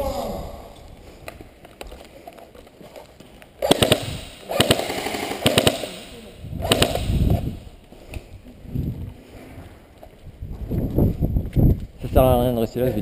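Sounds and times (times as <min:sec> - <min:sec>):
airsoft rifle bursts: 0:03.6 - 0:07.6.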